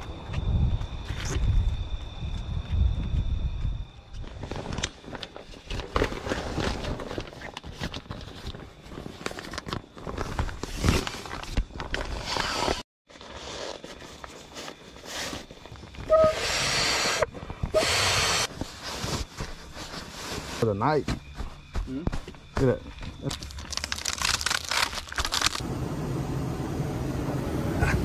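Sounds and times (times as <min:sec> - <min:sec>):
sleeping bag rustling and crinkling: 0:04.3 - 0:16.2, 0:18.4 - 0:25.6.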